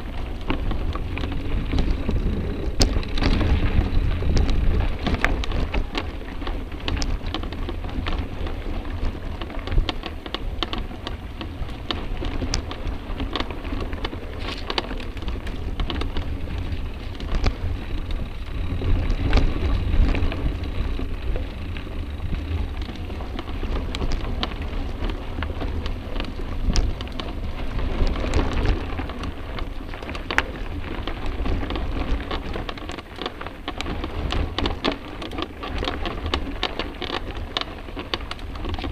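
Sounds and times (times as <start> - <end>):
bike clicks and rattles: 0.0 - 38.9
wind and trail rumble: 0.0 - 38.9.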